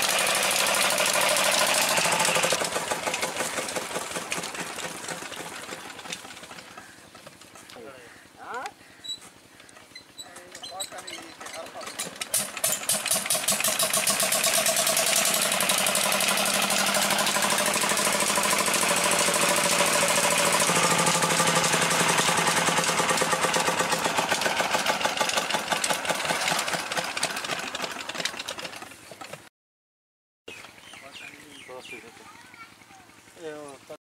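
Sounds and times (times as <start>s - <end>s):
diesel engine running: 0.0s - 7.6s, 11.3s - 29.3s.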